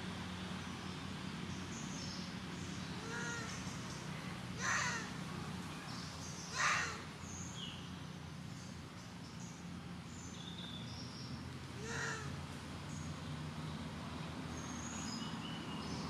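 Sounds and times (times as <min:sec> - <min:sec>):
harsh animal calls: 0:04.6 - 0:05.1, 0:06.5 - 0:07.0, 0:11.8 - 0:12.3.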